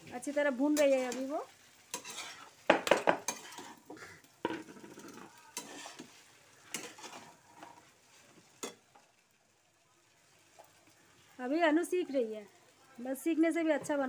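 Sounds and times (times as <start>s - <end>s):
light frying sizzle: 0.0s - 14.0s
metal spatula scraping a pan: 0.2s - 9.0s.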